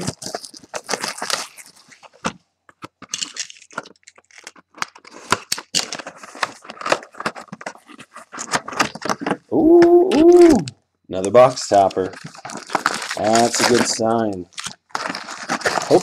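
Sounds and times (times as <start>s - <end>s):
plastic wrap crinkling and tearing: 0.0s - 16.0s
cardboard box being handled: 5.0s - 9.5s, 14.6s - 16.0s.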